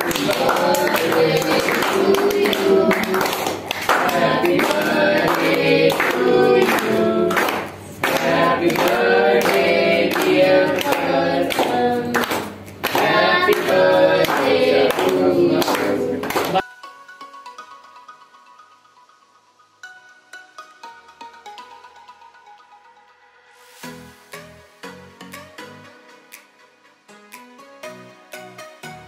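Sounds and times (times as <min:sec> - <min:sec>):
hand clapping: 0:00.0 - 0:16.6
voices singing with music: 0:00.0 - 0:16.6.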